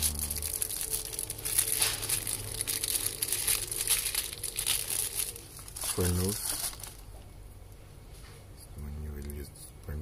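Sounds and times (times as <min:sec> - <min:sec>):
plastic bags crinkling: 0:00.0 - 0:07.3.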